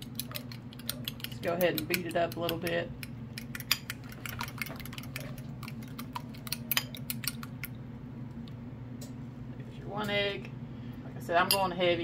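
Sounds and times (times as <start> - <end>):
fork clicking against ceramic bowl: 0.1 - 7.8.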